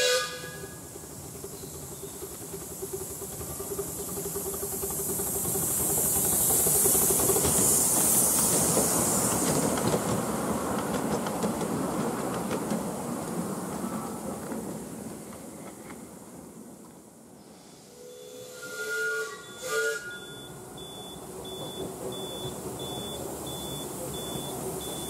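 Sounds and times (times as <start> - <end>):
steam locomotive hiss: 0.0 - 16.3, 17.2 - 25.0
wheels clicking over rail joints: 0.5 - 16.1.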